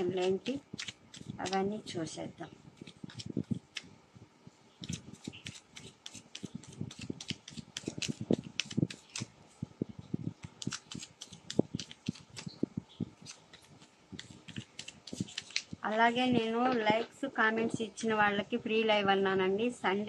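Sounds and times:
cards being shuffled: 0:00.0 - 0:02.0, 0:02.8 - 0:03.9, 0:04.8 - 0:09.3, 0:10.4 - 0:12.6, 0:13.2 - 0:15.9.

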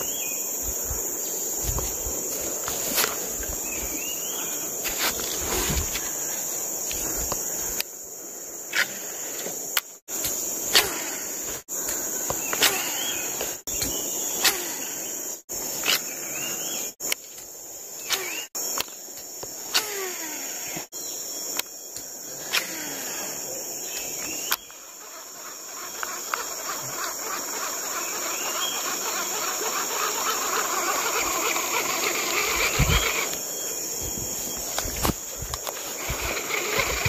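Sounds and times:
high-pitched insect chorus: 0:00.0 - 0:37.0.

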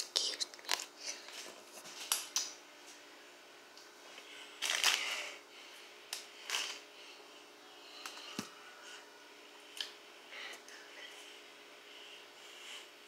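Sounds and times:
paper bag rustling and crinkling: 0:04.6 - 0:05.2.

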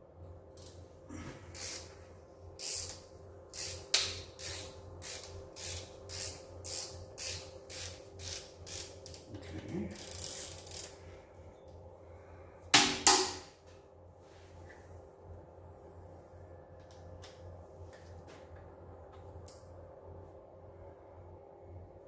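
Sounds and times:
hand ratchet clicking: 0:01.5 - 0:02.0, 0:02.6 - 0:09.3, 0:09.9 - 0:11.0.

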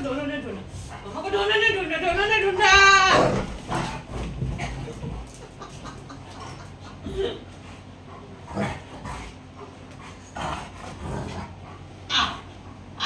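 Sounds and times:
dogs yipping and whining: 0:12.1 - 0:13.0.

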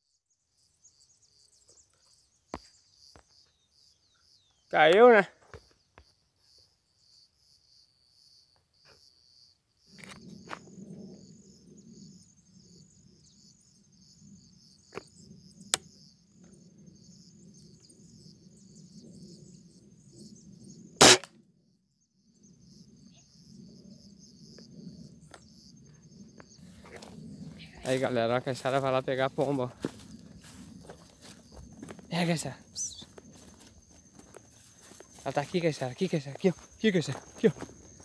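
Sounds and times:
insects chirring: 0:00.0 - 0:38.0
air rifle shot: 0:21.0 - 0:21.3.

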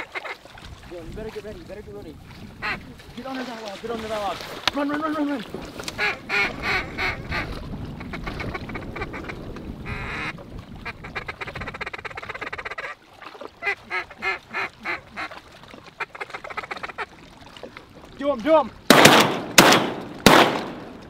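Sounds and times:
duck call quacks: 0:00.0 - 0:00.4, 0:02.6 - 0:02.8, 0:06.0 - 0:07.5, 0:09.9 - 0:13.0, 0:13.6 - 0:15.3, 0:16.0 - 0:17.1
wind rumble: 0:00.6 - 0:04.4, 0:05.4 - 0:12.9.

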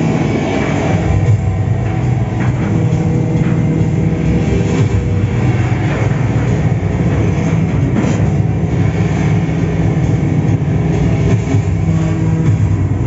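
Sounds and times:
dense vehicle rumble soundtrack: 0:00.0 - 0:13.0.

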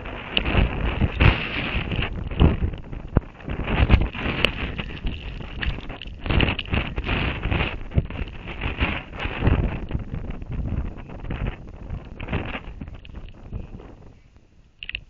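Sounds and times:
wind gusting over microphone: 0:00.0 - 0:15.0
clicks and knocks against camera: 0:00.3 - 0:10.0, 0:14.8 - 0:15.0.

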